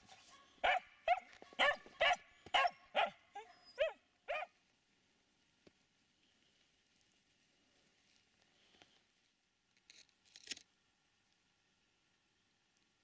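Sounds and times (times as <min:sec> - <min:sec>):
dog barking sharply: 0:00.6 - 0:03.2.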